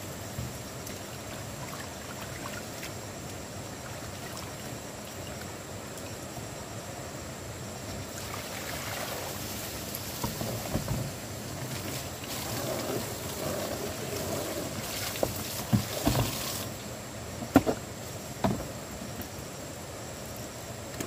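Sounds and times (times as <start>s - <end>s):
water sloshing and splashing: 0.3s - 5.6s, 7.9s - 18.8s
plastic basins knocking on wood: 17.4s - 17.8s.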